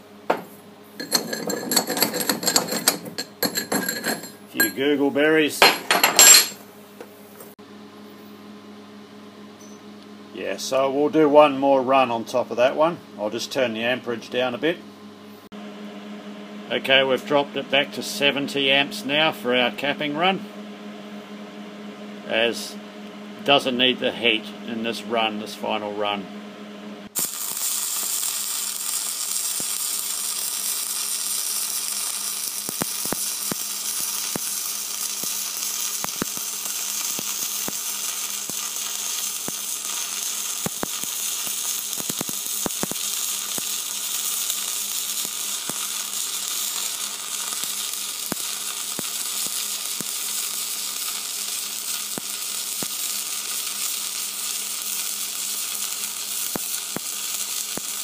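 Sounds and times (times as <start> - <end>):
welding arc crackling sizzle: 0.0 - 6.6, 27.1 - 58.0
welding arc sharp pops: 27.1 - 58.0.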